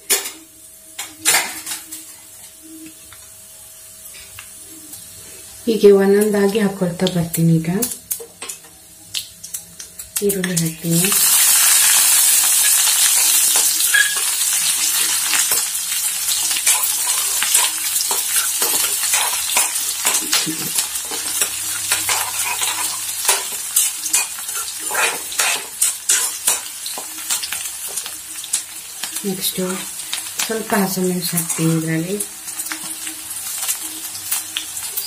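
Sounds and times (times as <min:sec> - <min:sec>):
onions sizzling in hot oil: 0:00.0 - 0:35.0
ladle scraping a pan: 0:21.8 - 0:26.6.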